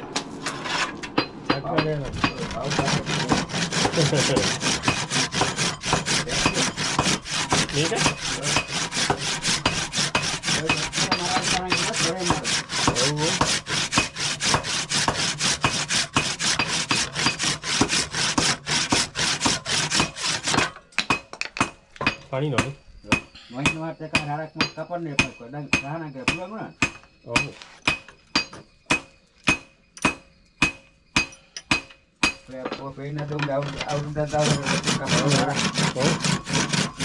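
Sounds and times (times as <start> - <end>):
handsaw rasping through horn: 2.1 - 20.7, 33.8 - 37.0.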